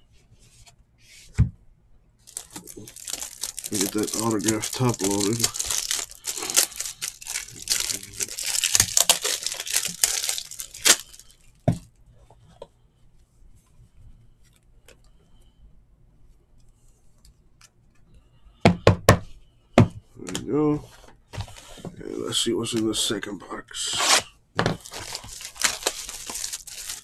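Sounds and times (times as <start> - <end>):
plastic wrapping crinkling: 2.2 - 11.5, 24.0 - 27.0.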